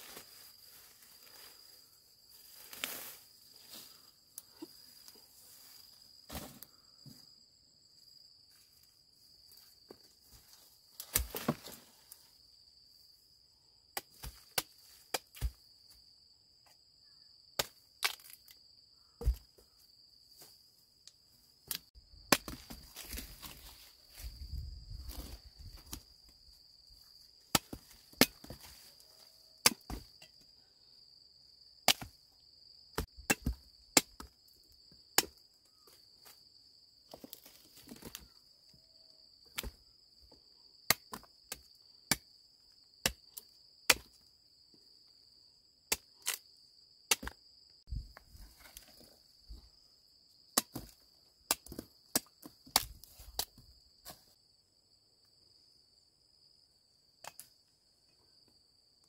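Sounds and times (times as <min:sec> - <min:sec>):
insects droning: 0:00.0 - 0:59.0
machete chopping: 0:19.2 - 0:19.4, 0:22.3 - 0:22.8, 0:29.6 - 0:30.1, 0:31.9 - 0:32.2, 0:33.0 - 0:34.4, 0:43.9 - 0:44.2, 0:47.1 - 0:47.4.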